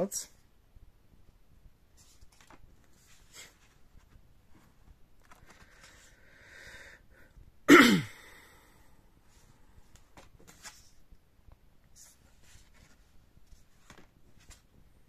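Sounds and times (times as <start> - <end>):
cardboard cards handled: 2.0 - 6.1, 12.0 - 14.8
person sneezing: 7.7 - 8.4.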